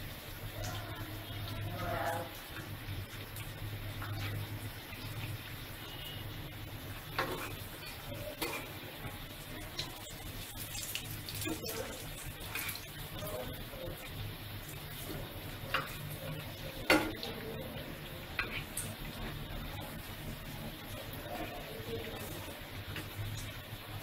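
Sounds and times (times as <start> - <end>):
food deep-frying in oil: 0.0 - 24.0
oil popping and clicking: 7.2 - 13.0.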